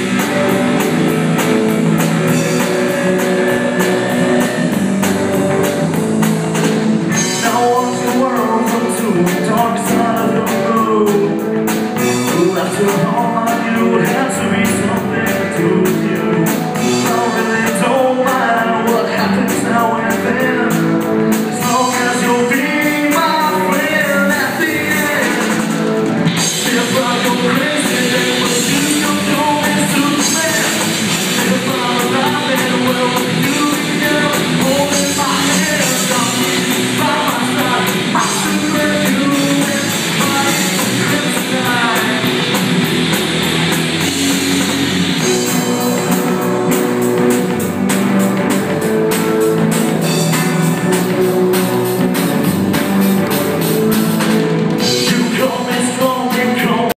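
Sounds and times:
man singing: 0.0s - 43.2s, 54.8s - 56.9s
live rock band playing: 0.0s - 56.9s.

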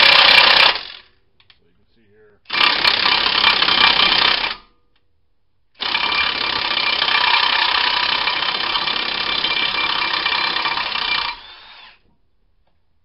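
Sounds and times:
electric ratchet running: 0.0s - 1.1s, 2.5s - 4.6s, 5.8s - 12.0s.

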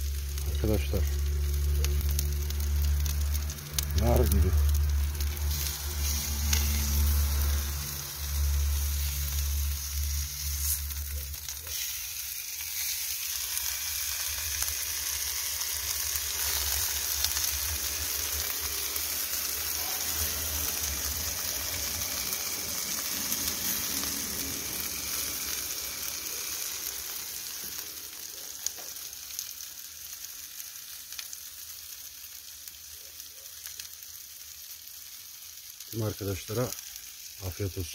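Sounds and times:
low rumble: 0.0s - 11.7s
food sizzling on hot slab: 0.0s - 37.9s.

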